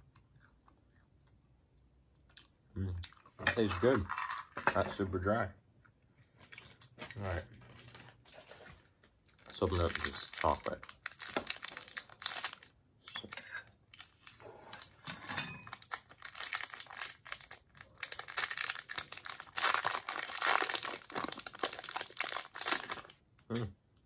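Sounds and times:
wrapper crinkling and tearing: 6.7 - 15.1, 15.7 - 23.2.

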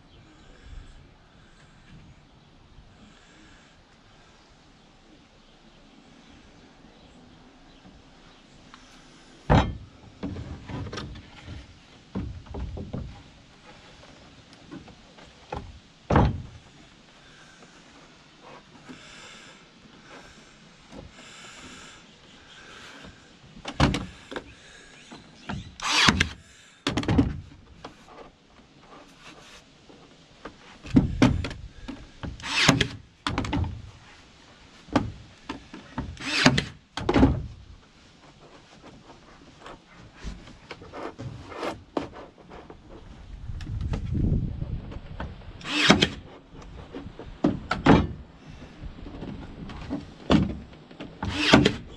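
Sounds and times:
nail gun firing into wood: 25.8 - 26.4, 32.4 - 33.4, 36.2 - 36.8, 45.6 - 46.2, 51.2 - 51.9.

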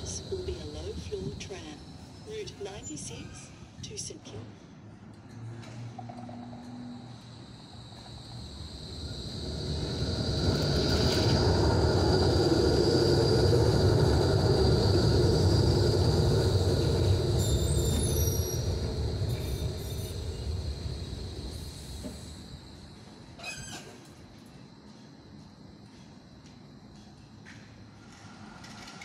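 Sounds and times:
steady high whine: 0.0 - 3.2, 6.6 - 23.2
tram wheels rumbling on rails: 0.0 - 3.6, 5.4 - 29.0.

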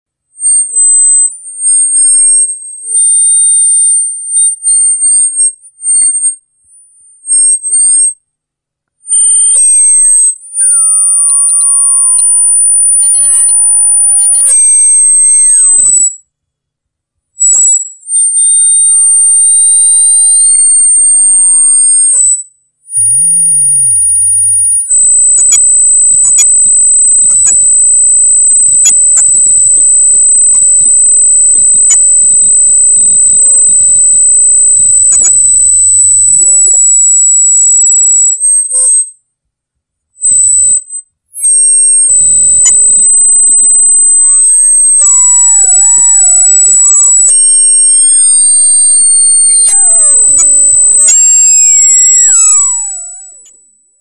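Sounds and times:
audio feedback squeal: 0.4 - 8.2, 9.0 - 16.3, 17.4 - 39.2, 40.2 - 54.0
crackles: 0.4 - 8.2, 9.0 - 16.3, 17.4 - 39.2, 40.2 - 54.0
sliding tones: 9.1 - 16.1, 17.4 - 39.0, 46.8 - 53.8.

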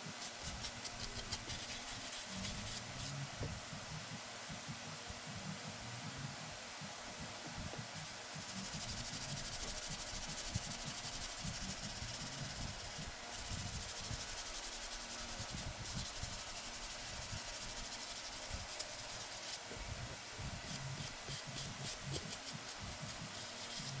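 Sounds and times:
sanding block scratching: 0.0 - 3.2, 8.4 - 19.7, 20.6 - 24.0.

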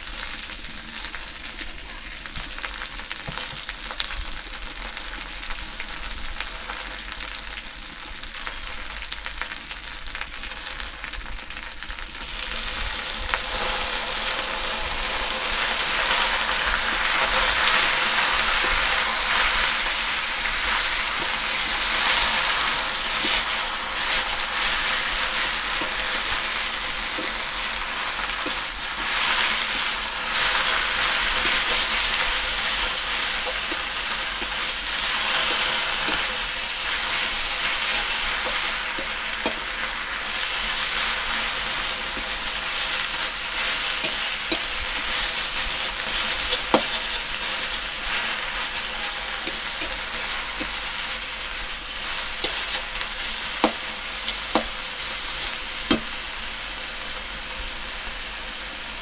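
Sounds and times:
greens sizzling in a pan: 0.0 - 59.0
metal spatula scraping: 15.9 - 39.9, 41.4 - 56.2.

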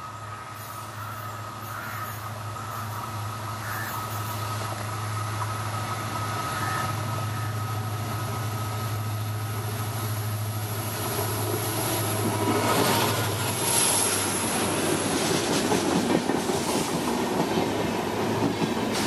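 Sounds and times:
locomotive diesel engine drone: 0.0 - 15.0.

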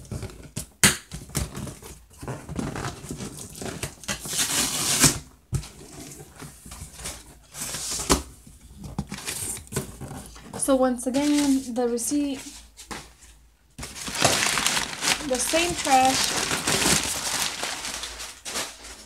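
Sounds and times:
packing paper crinkling: 11.1 - 12.8, 13.8 - 19.0.

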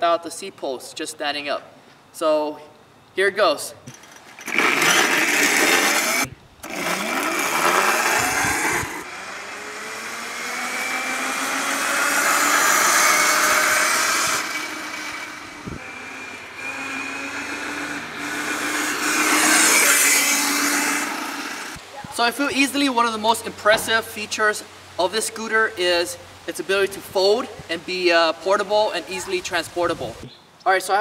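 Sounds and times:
electric scooter motor whine: 4.4 - 21.8.

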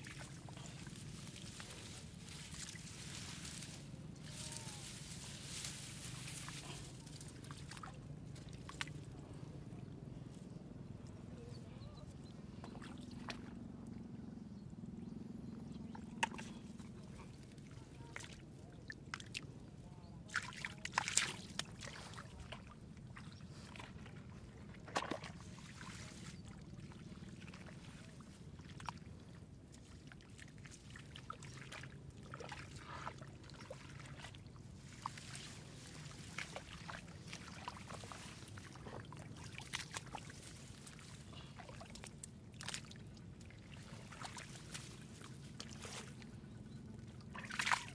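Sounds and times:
shallow water splashing: 20.3 - 47.9.

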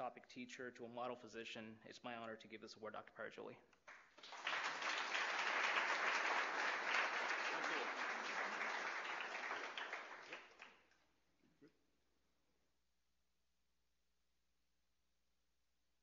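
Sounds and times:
audience applauding: 3.9 - 10.8.

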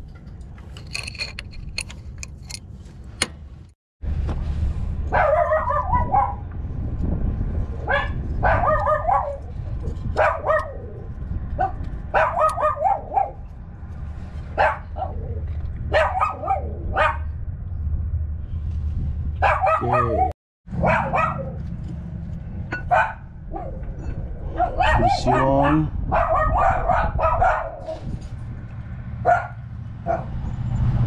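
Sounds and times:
dog barking: 5.1 - 6.4, 7.8 - 9.5, 10.2 - 10.8, 11.6 - 13.4, 14.6 - 15.3, 15.9 - 17.3, 19.4 - 21.6, 22.8 - 23.9, 24.5 - 28.0, 29.2 - 30.3.

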